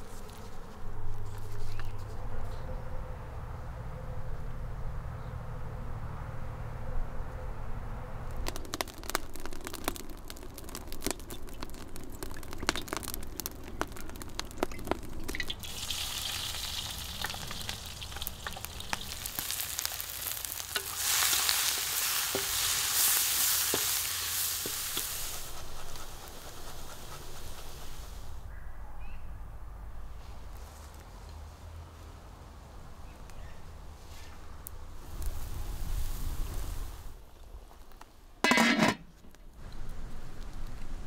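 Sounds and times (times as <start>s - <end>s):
food sizzling in hot oil: 8.5s - 28.3s
spatula stirring and scraping: 20.3s - 28.1s.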